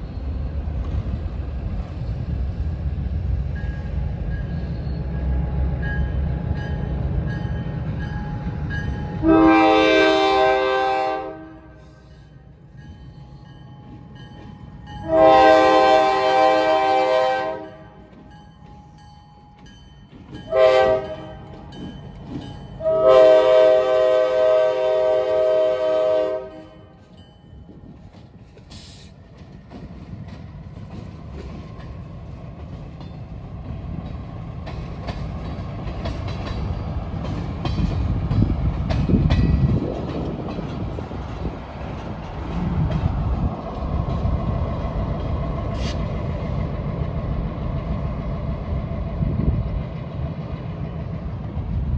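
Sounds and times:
freight train rumble with wheel clicks: 0:00.0 - 0:51.9
locomotive air horn blasts: 0:09.2 - 0:12.0, 0:15.0 - 0:17.9, 0:20.5 - 0:21.5, 0:22.8 - 0:26.9.

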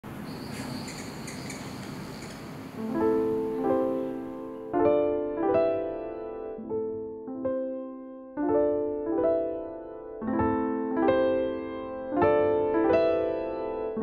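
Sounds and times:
steady hiss: 0:00.1 - 0:04.1
slow piano notes and chords: 0:00.6 - 0:14.0.

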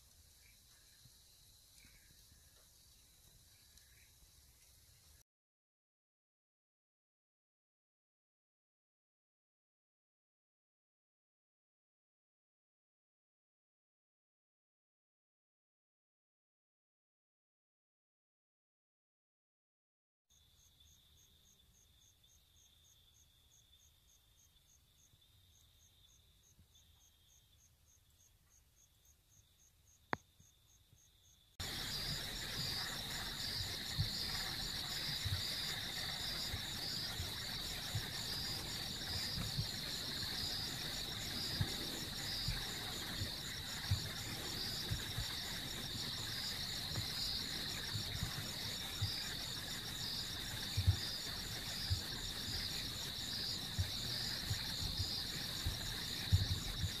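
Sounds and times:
crickets trilling: 0:20.3 - 0:57.0.

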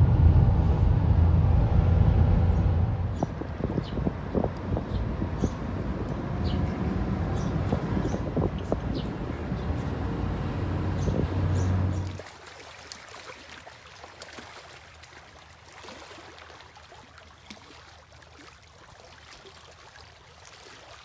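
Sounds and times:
loud low vehicle rumble: 0:00.0 - 0:12.2
small waves lapping: 0:03.2 - 0:21.0.

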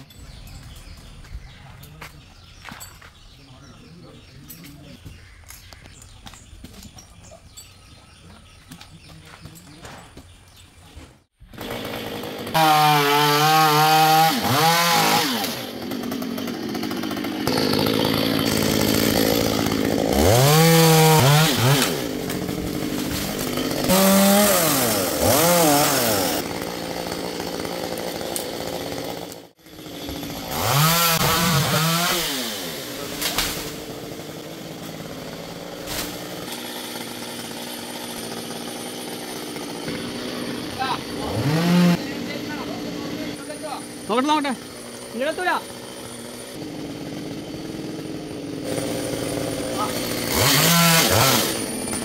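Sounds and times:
chainsaw revving: 0:11.4 - 0:52.0.

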